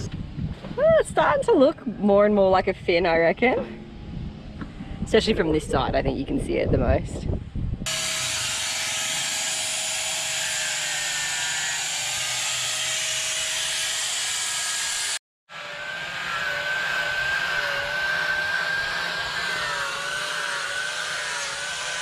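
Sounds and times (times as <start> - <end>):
electric sander whine: 7.8 - 22.0.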